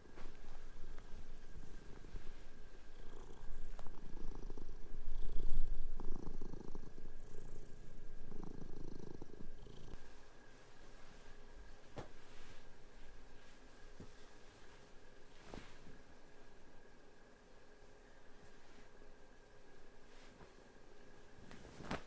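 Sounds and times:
cat purring: 0:00.0 - 0:10.3.

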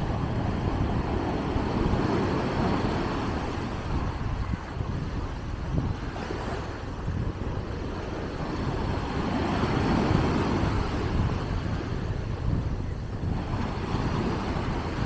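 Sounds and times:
surf breaking on the beach: 0:00.0 - 0:15.0
wind buffeting the microphone: 0:00.0 - 0:15.0.

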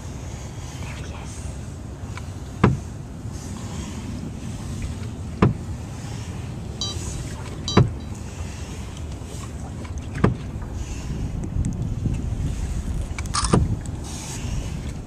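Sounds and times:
water slapping against hull: 0:00.1 - 0:15.0
wind noise on microphone: 0:10.2 - 0:15.0.

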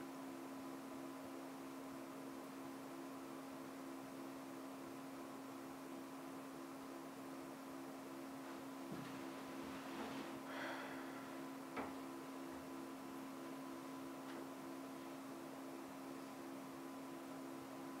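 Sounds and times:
faint electrical hum: 0:00.0 - 0:18.0
soft rustle: 0:08.5 - 0:10.4.

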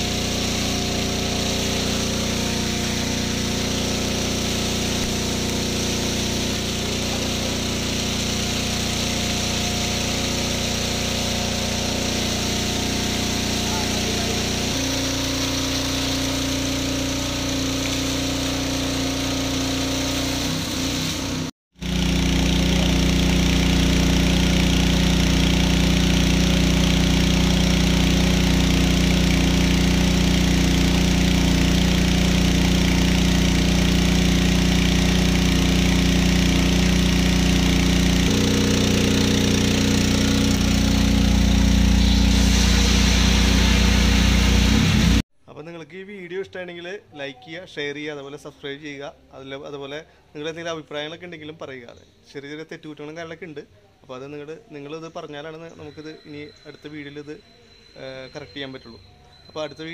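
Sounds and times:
petrol engine running under load: 0:00.0 - 0:45.2
water rushing from hose: 0:00.0 - 0:45.2.

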